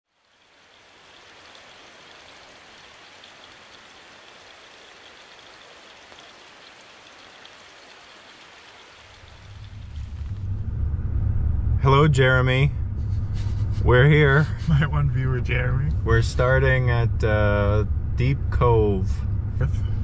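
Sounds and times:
rain falling in forest: 0:00.0 - 0:10.7
low rumble: 0:09.3 - 0:20.0.

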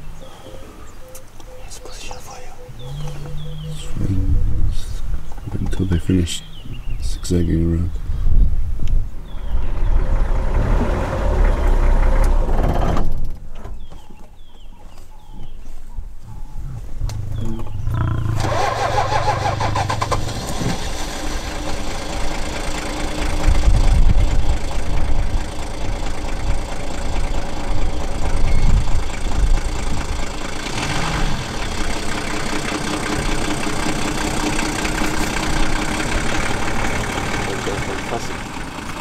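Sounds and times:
heavy low rumbles: 0:02.7 - 0:13.3, 0:16.3 - 0:39.0
vehicle engine starting and idling: 0:09.2 - 0:13.8, 0:17.0 - 0:39.0.

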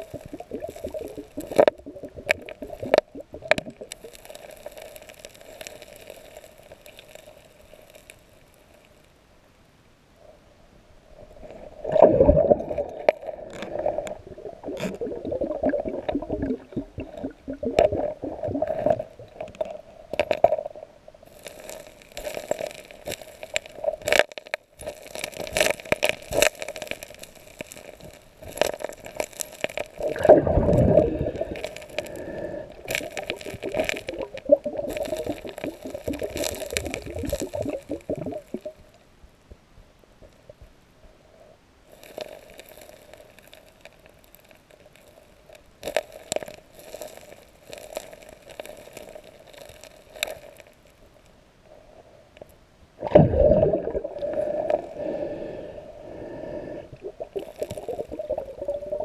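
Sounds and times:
water gurgling underwater: 0:00.0 - 0:05.1, 0:11.7 - 0:20.9, 0:24.8 - 0:38.9, 0:53.0 - 0:55.0, 0:56.9 - 0:59.0
stones clicking underwater: 0:00.0 - 0:08.2, 0:11.9 - 0:20.7, 0:21.3 - 0:38.8, 0:41.9 - 0:50.8, 0:57.2 - 0:59.0.

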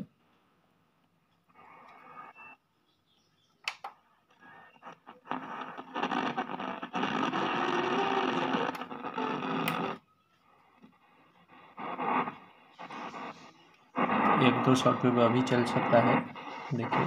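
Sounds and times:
shortwave radio static hiss: 0:04.4 - 0:17.0.

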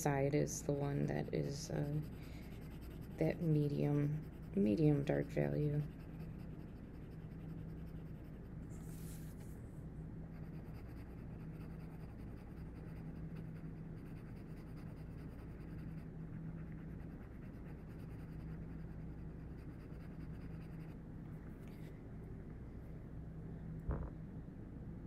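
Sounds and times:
low steady hum: 0:00.0 - 0:25.0
pencil scratching on paper: 0:00.3 - 0:09.3, 0:10.3 - 0:21.0.

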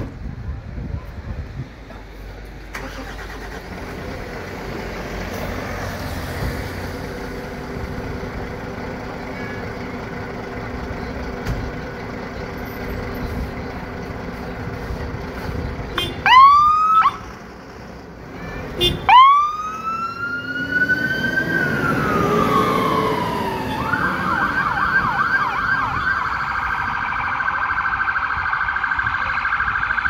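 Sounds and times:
diesel engine idling: 0:00.1 - 0:20.0.

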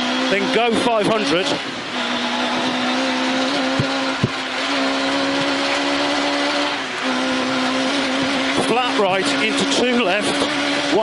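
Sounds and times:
car engine at high revs: 0:00.0 - 0:11.0
sharp knocks: 0:03.7 - 0:04.4.

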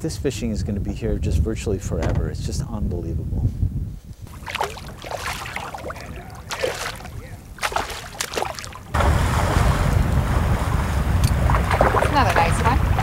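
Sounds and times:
wind rumble on microphone: 0:00.0 - 0:13.0
fish splashing in water: 0:04.3 - 0:09.9, 0:11.4 - 0:13.0.

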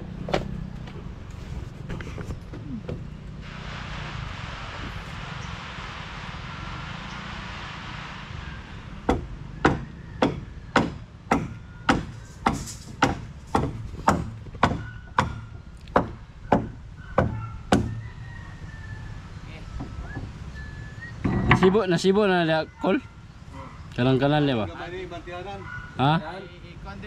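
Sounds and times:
tool striking wood: 0:09.1 - 0:18.0.

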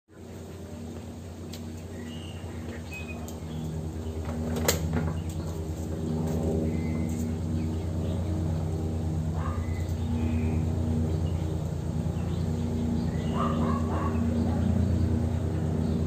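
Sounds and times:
low motor hum: 0:00.1 - 0:16.0.

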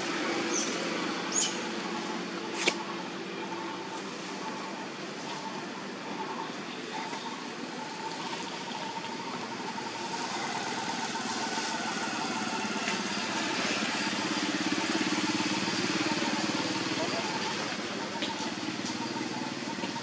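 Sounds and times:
motor engine running: 0:07.1 - 0:20.0.

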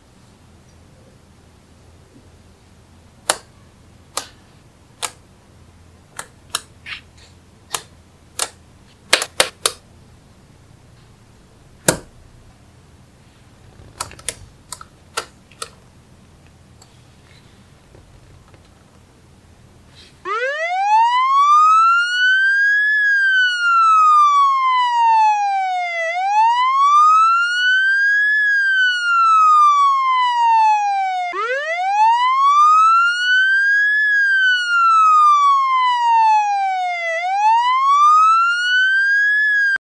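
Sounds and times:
wailing siren: 0:20.2 - 0:39.8.

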